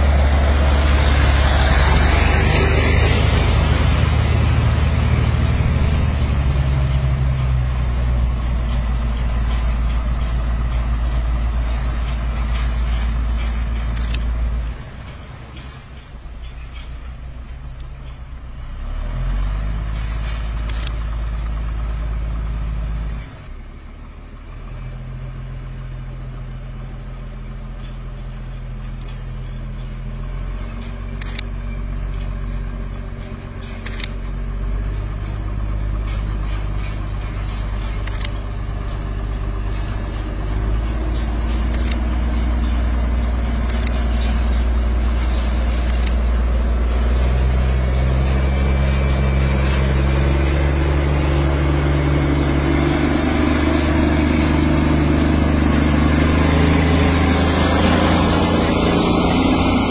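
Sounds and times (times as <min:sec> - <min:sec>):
diesel locomotive engine droning: 0:00.0 - 0:59.9
sharp clicks: 0:11.6 - 0:18.2, 0:20.0 - 0:21.7, 0:28.8 - 0:31.6, 0:32.2 - 0:34.4, 0:35.0 - 0:38.6, 0:39.8 - 0:46.5.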